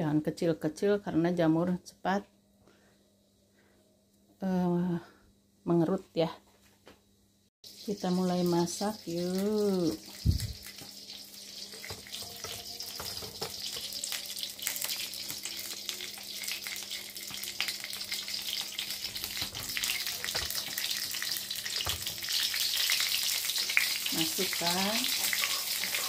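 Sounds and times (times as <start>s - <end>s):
oil crackling and sizzling: 7.6s - 26.0s.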